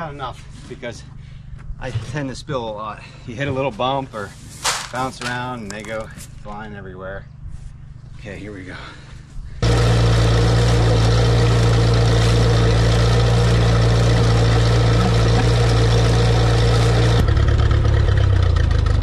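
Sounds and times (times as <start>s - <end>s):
vehicle engine running loud: 9.6s - 19.0s.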